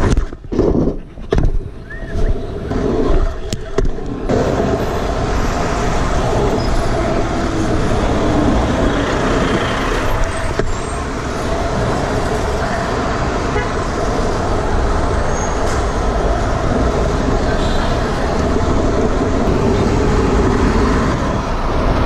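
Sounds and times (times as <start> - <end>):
car traffic: 0.0 - 22.0
wheel noise on asphalt: 0.0 - 22.0
wind on microphone: 0.0 - 22.0.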